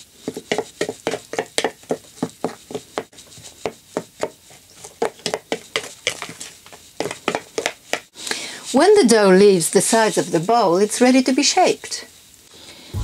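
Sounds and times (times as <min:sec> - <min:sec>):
knife scraping plastic bowl: 0:00.2 - 0:08.1.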